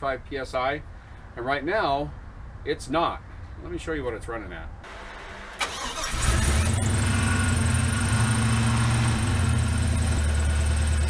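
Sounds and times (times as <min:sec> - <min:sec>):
vee eight engine idling: 0:04.9 - 0:11.0.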